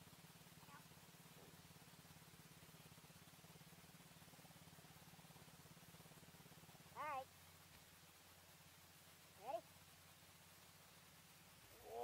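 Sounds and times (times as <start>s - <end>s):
atv engine idling: 0.0s - 12.0s.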